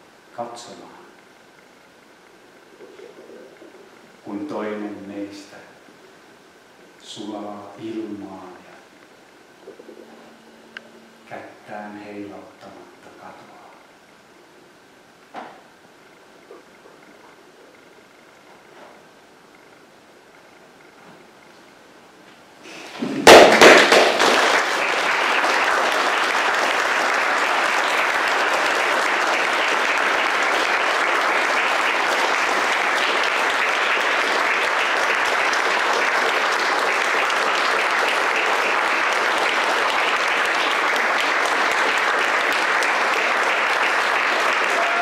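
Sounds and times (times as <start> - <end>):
audience applauding: 23.2 - 45.0.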